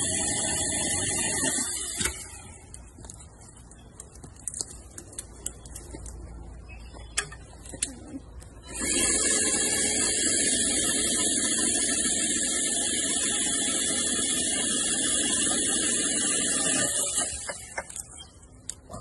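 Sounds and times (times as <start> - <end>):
electric pole saw running: 0.0 - 2.6, 8.6 - 18.0.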